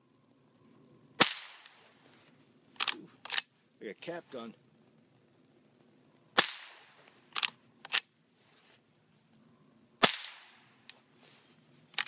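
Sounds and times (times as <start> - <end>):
quiet rifle shots: 1.2 - 1.8, 6.3 - 8.1, 10.0 - 10.9.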